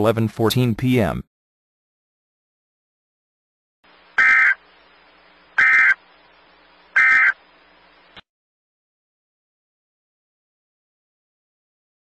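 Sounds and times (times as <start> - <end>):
faint hiss: 3.9 - 8.2.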